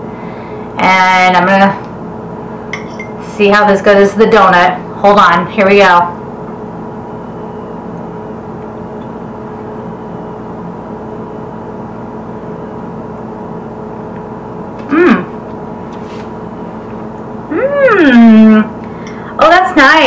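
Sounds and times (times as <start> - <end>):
kitchen appliance humming: 0.0 - 20.0
short falling vocal sound: 14.8 - 15.4.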